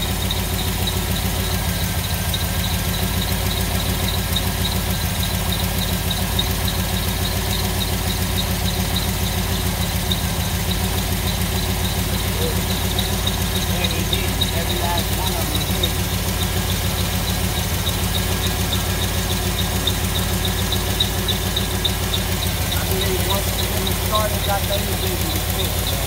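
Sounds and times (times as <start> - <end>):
car engine idling: 0.0 - 26.0.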